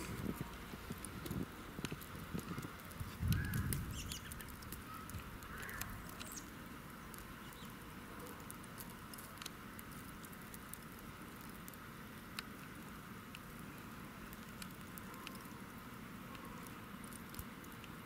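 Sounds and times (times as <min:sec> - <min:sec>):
steady faint hiss: 0:00.0 - 0:18.0
light ticks: 0:00.1 - 0:06.5, 0:07.1 - 0:12.6, 0:13.3 - 0:15.5, 0:16.3 - 0:18.0.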